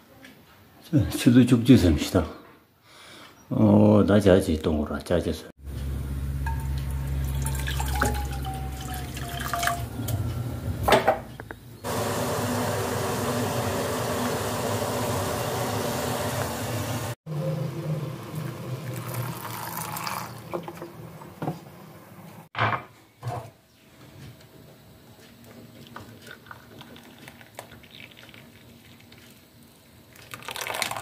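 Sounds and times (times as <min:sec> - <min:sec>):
water pouring into saucepan: 0:06.4 - 0:10.0, 0:18.2 - 0:21.0, 0:26.2 - 0:29.1, 0:30.2 - 0:31.0
pan hissing over gas burner: 0:11.8 - 0:17.2.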